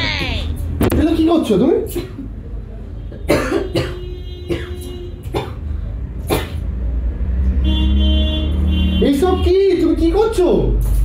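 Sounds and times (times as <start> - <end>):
woman coughing: 3.3 - 5.6.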